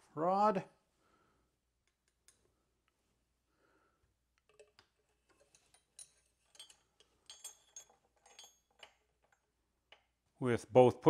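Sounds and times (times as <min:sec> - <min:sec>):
metallic clicks and clinks: 0:04.4 - 0:10.2.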